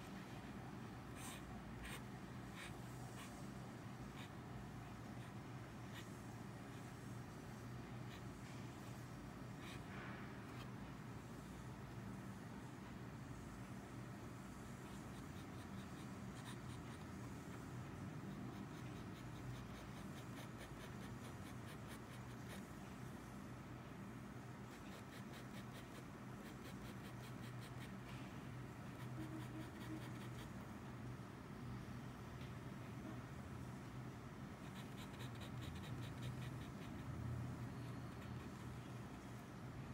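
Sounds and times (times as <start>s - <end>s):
faint low hum: 0.0s - 39.9s
pen nib scratching on paper: 1.2s - 3.4s, 4.1s - 4.4s, 14.6s - 17.7s, 18.3s - 22.7s, 24.6s - 28.1s, 28.8s - 30.6s, 34.6s - 39.2s.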